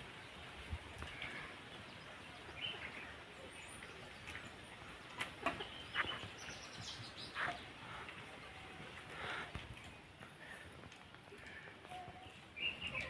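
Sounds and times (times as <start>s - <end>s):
birds chirping: 0.0s - 13.0s
chickens clucking: 5.0s - 9.9s.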